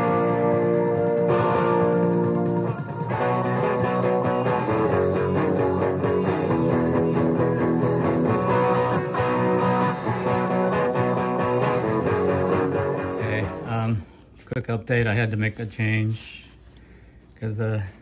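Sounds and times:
electric guitar playing: 0:00.0 - 0:13.7.

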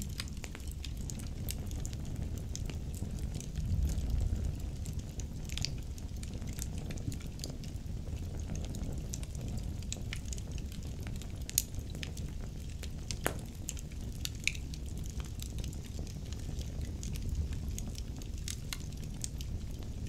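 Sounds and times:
logs crackling in fireplace: 0:00.0 - 0:20.0
low rumble of flames: 0:00.0 - 0:20.0
sharp pops of burning wood: 0:08.4 - 0:20.0.

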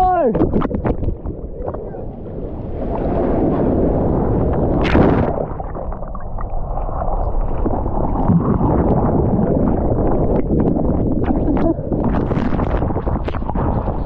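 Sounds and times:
sharp water splash: 0:04.7 - 0:09.4.

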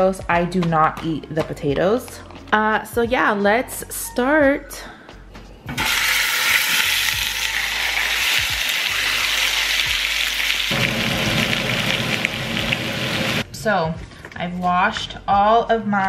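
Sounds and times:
meat sizzling in hot oil: 0:05.8 - 0:13.4.

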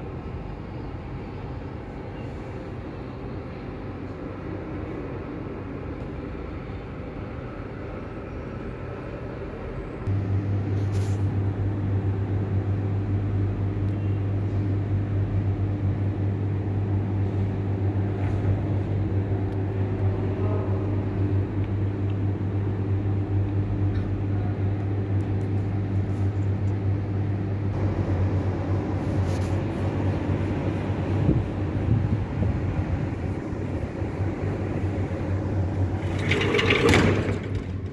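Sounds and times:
steady low hum: 0:00.0 - 0:37.9.

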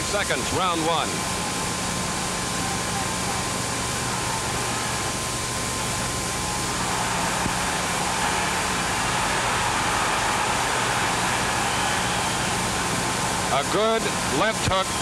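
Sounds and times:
large arena crowd: 0:00.0 - 0:15.0
recording hiss and hum: 0:00.0 - 0:15.0.

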